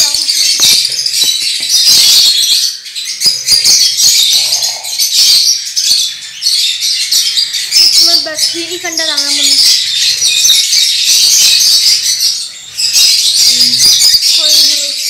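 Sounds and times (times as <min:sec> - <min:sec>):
flock of birds chattering: 0:00.0 - 0:15.0.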